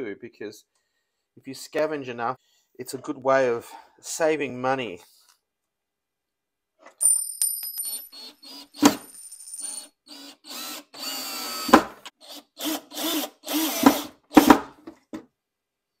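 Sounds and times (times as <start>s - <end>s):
cordless drill bursts: 8.1s - 8.9s, 9.7s - 14.5s.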